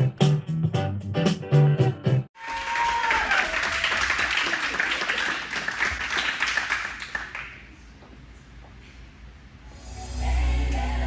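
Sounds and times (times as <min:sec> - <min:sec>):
audience applauding: 0:02.4 - 0:07.7.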